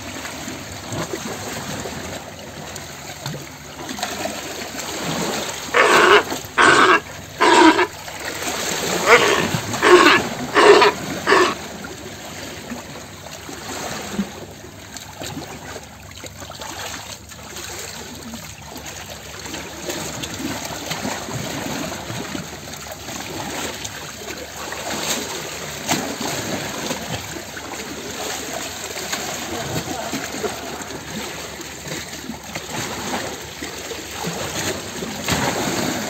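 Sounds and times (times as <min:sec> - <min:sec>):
water trickling and splashing: 0:00.0 - 0:36.0
seal pup calling: 0:05.6 - 0:08.0, 0:08.9 - 0:11.6.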